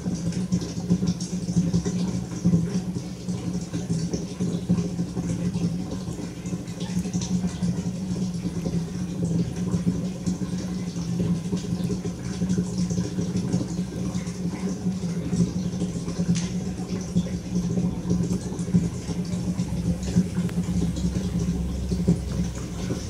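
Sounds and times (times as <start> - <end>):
motor humming: 16.0 - 23.0.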